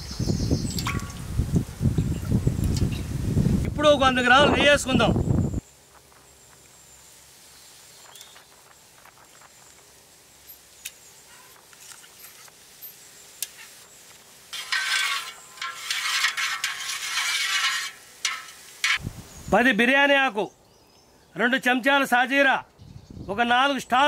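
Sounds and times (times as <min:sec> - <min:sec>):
loud sizzling in hot oil: 0:06.3 - 0:19.0.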